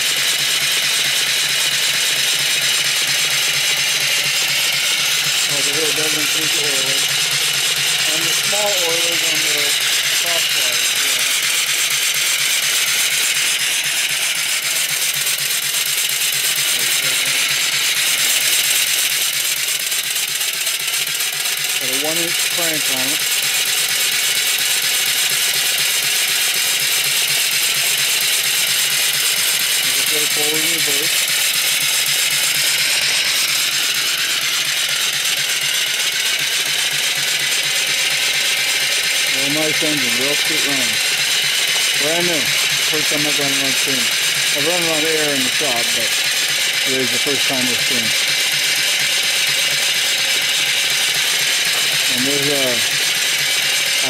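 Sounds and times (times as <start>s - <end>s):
steam engine mechanical beat: 0.0s - 54.0s.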